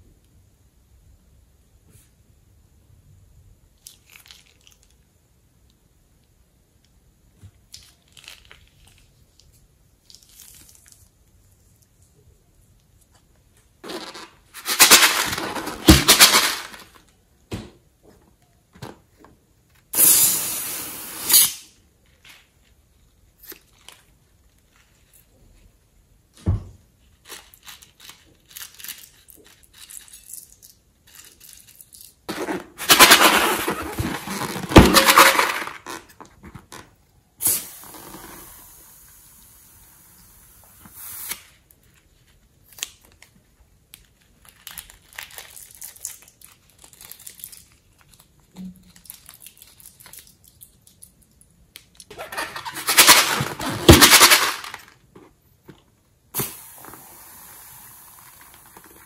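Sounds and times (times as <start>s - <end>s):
crinkling and rubbing: 12.8s - 17.2s, 22.0s - 25.9s, 26.9s - 37.0s, 52.0s - 56.0s.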